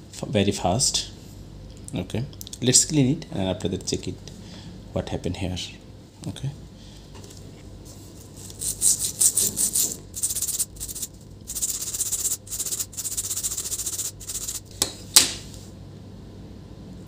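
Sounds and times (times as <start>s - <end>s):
brush scrubbing circuit board: 8.4s - 14.7s.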